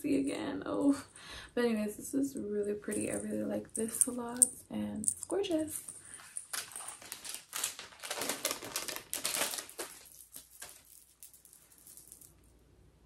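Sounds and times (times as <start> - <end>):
packaging rustling: 6.1 - 12.1.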